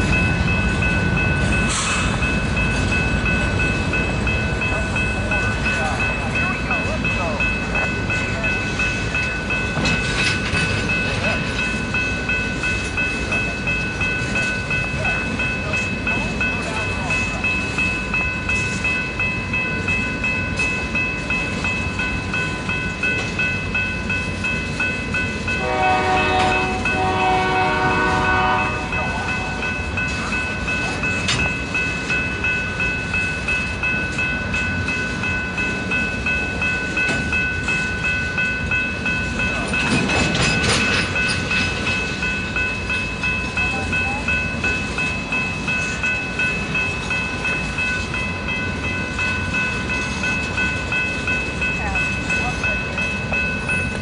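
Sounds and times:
train wheels clicking over rail joints: 0.0s - 28.2s, 29.4s - 54.0s
locomotive horn: 25.6s - 28.9s.

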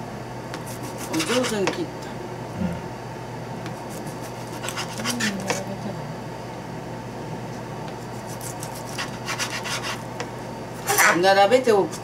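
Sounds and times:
background hum: 0.0s - 12.0s
knife slicing fish: 0.6s - 1.6s, 3.8s - 5.6s, 8.0s - 10.0s.

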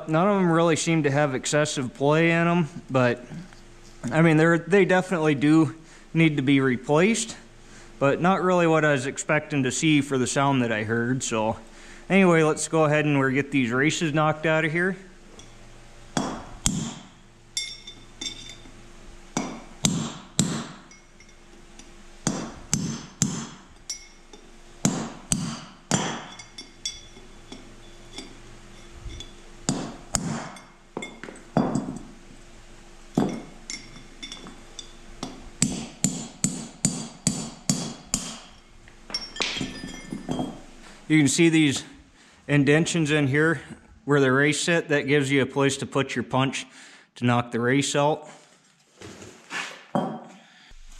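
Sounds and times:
hammer striking metal punch: 16.2s - 18.6s, 19.4s - 21.0s, 22.2s - 24.1s, 24.8s - 28.3s, 29.1s - 32.1s, 33.2s - 40.6s.

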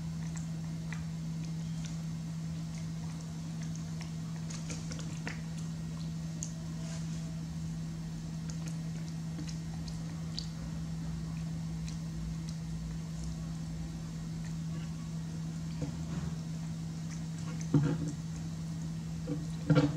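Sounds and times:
monkey mouth sounds eating: 0.0s - 6.6s, 8.4s - 13.4s, 15.6s - 18.5s
steady low hum: 0.0s - 19.9s.

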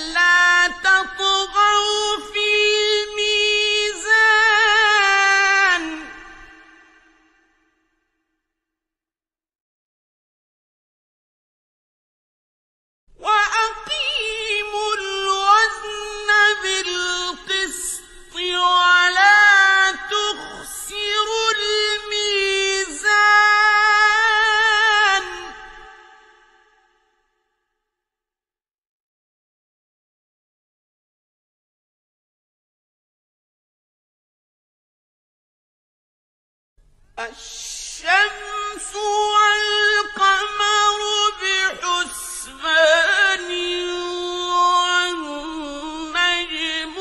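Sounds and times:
man chanting melodically: 37.2s - 47.0s.

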